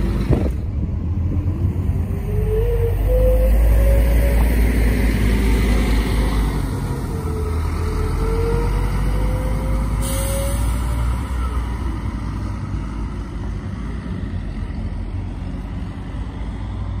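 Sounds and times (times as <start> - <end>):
bus engine pulling away: 0.0 - 17.0
air hiss: 10.0 - 11.0.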